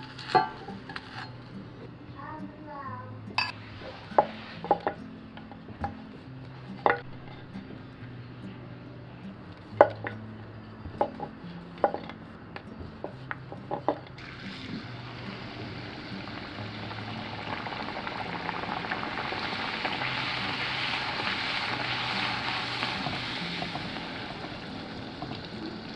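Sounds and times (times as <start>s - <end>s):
dough sizzling in hot oil: 3.5s - 5.0s, 14.2s - 25.9s.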